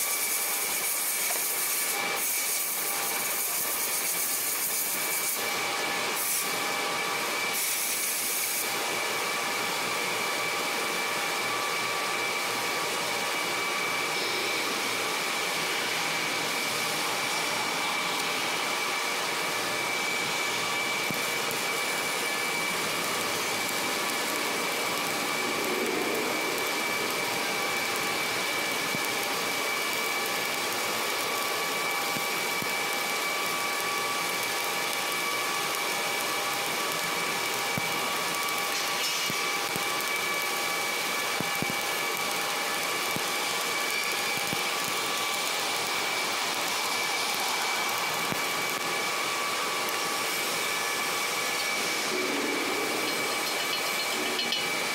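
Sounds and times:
welding equipment hissing: 0.0s - 11.5s, 12.2s - 54.9s
high steady whine: 12.7s - 30.6s, 46.6s - 54.9s.

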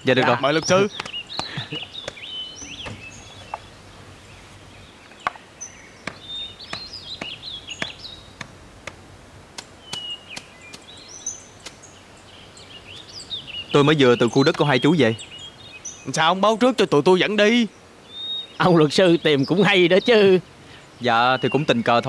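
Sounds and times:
birds chirping: 0.0s - 22.0s
outdoor background hiss: 0.0s - 22.0s
sharp clicks: 9.6s - 10.9s.

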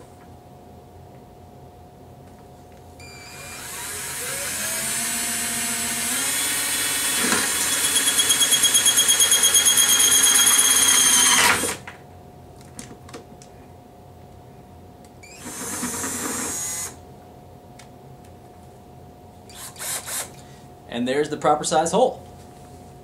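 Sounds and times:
cordless drill boring plastic: 3.1s - 11.8s, 15.3s - 17.0s, 19.5s - 20.3s.

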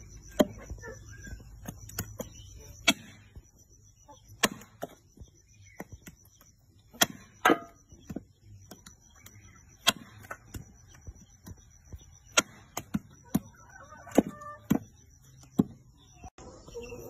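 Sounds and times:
cleaver chopping on wooden block: 4.4s - 5.0s.

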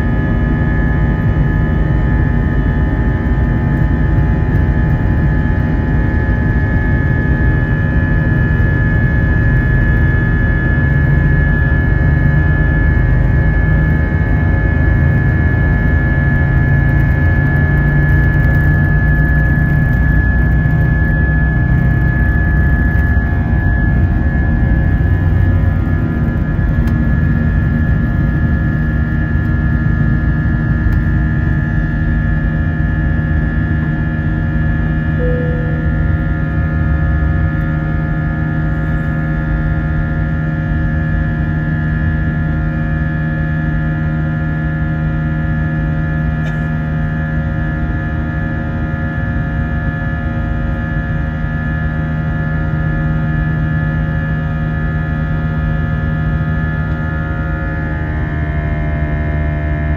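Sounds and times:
jet engines droning and whining: 0.0s - 59.9s
low rumble: 35.2s - 37.4s.

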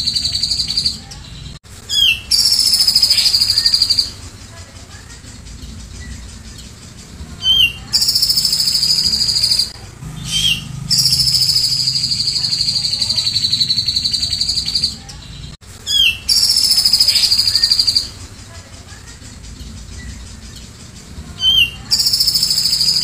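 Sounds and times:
bird singing fast high trills: 1.8s - 4.2s, 5.1s - 15.1s, 15.8s - 18.2s, 19.8s - 23.0s.

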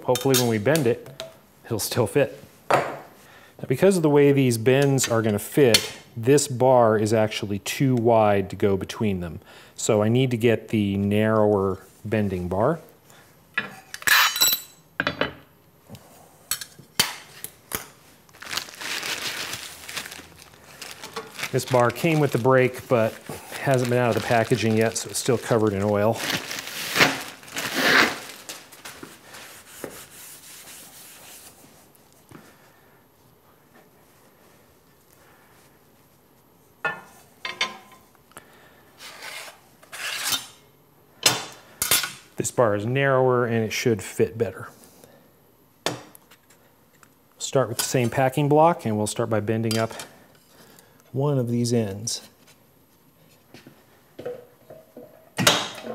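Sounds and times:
paper rustling: 18.3s - 32.0s.

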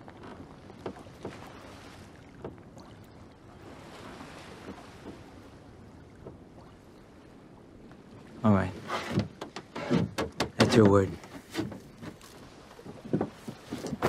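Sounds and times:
water lapping: 0.0s - 14.0s
faint knocks on wooden boat: 0.2s - 1.4s, 2.3s - 2.6s, 9.0s - 14.0s.

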